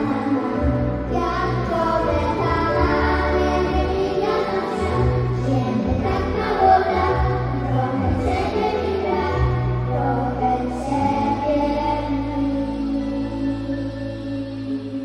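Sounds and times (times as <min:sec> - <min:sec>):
amplified accompaniment with bass: 0:00.0 - 0:15.0
children's choir singing: 0:00.0 - 0:15.0.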